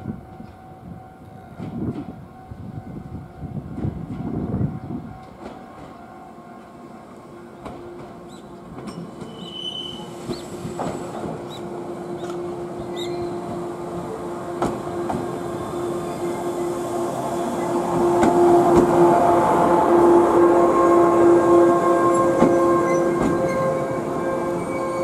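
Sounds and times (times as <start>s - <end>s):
train pulling into platform: 0.0s - 25.0s
train wheels clacking: 7.6s - 11.6s, 18.2s - 19.2s, 22.2s - 23.7s
high squeal: 9.2s - 10.6s, 12.2s - 13.5s.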